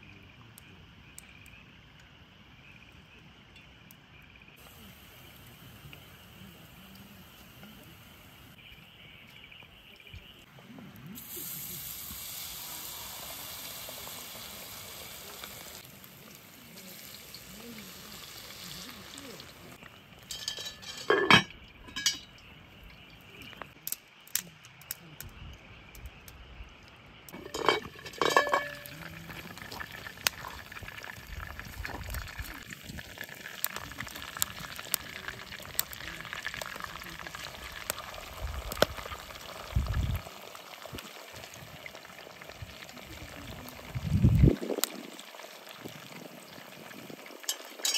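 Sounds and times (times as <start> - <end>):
hot oil sizzling: 4.5 - 9.0, 11.1 - 23.8, 27.2 - 47.9
metal lid clanking: 20.3 - 22.4, 27.4 - 29.0, 47.5 - 47.9
crackles and pops: 21.9 - 47.9.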